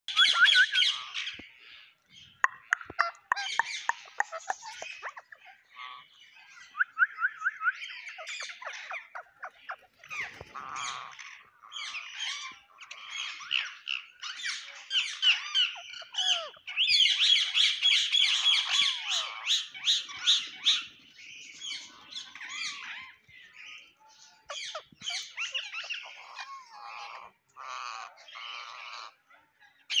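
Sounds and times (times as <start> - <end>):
parakeets squawking and chattering: 0.1 - 30.0.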